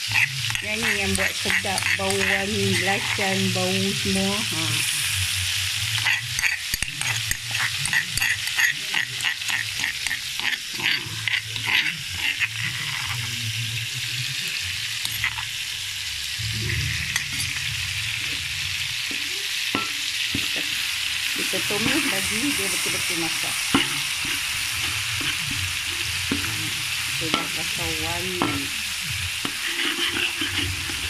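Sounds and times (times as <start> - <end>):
spatula scraping and tapping wok: 0.0 - 4.5, 5.8 - 13.4, 19.0 - 20.8, 21.4 - 31.0
paste sizzling in hot oil: 0.0 - 31.0.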